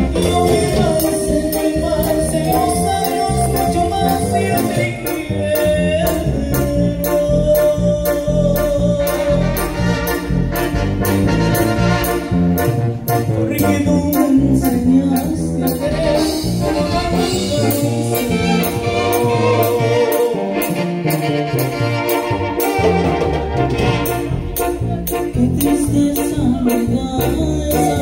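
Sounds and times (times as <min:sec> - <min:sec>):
live dance band playing: 0:00.0 - 0:28.0
trumpets: 0:07.0 - 0:14.4, 0:15.6 - 0:28.0.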